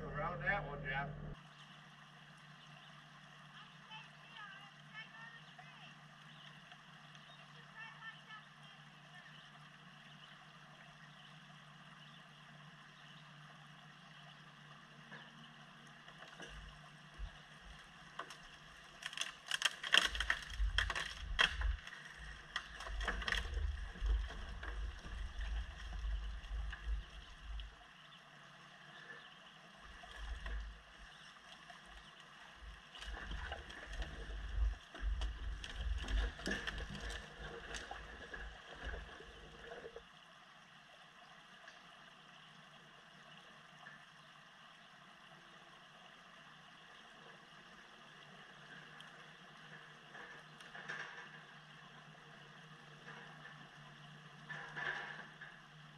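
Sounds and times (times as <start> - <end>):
diesel machine running: 0.0 - 1.4
water splashing: 14.4 - 41.9
log scraping on stones: 16.2 - 27.7, 29.9 - 31.0, 31.9 - 40.0.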